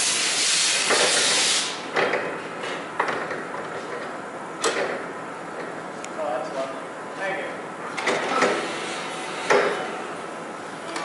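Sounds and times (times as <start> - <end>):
air hissing out: 0.0 - 1.8
knocks and clanks: 1.9 - 5.7, 7.9 - 8.7, 9.4 - 9.9.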